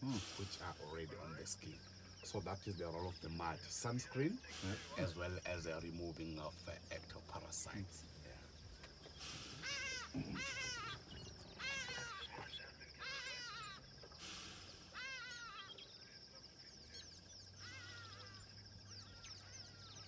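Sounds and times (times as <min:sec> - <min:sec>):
squeaky mewing animal calls: 0:09.5 - 0:14.2, 0:14.8 - 0:15.9, 0:17.6 - 0:20.0.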